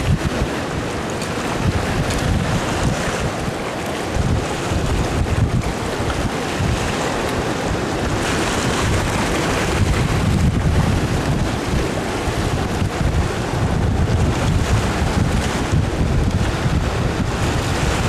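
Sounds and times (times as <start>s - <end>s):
sea waves washing over rocks: 0.0s - 18.0s
wind buffeting microphone: 0.0s - 18.0s.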